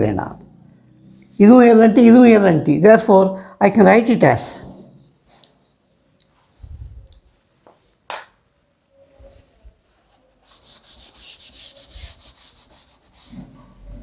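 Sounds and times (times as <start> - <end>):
cloth wiping a blackboard: 8.5 - 14.0.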